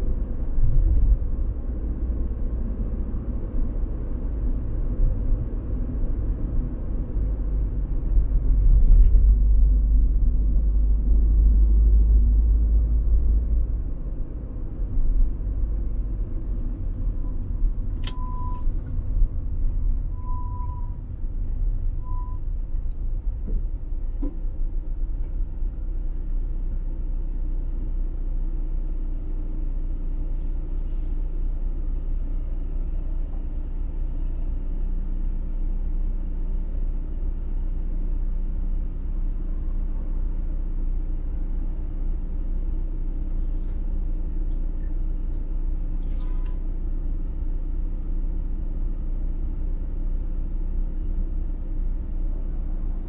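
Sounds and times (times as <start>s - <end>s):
car engine and road noise: 0.0s - 53.0s
short high beep: 18.1s - 18.7s, 20.1s - 21.0s, 22.0s - 22.5s.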